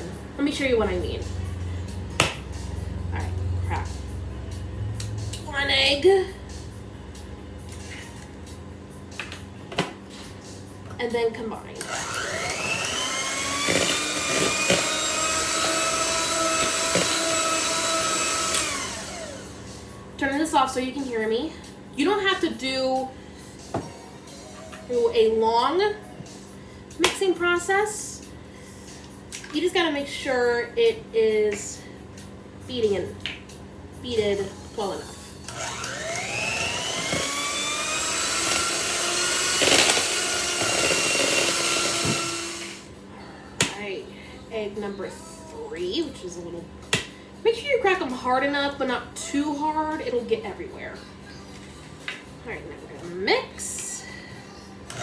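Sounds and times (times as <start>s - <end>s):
electric hand mixer whine: 11.8s - 19.7s, 35.5s - 42.9s.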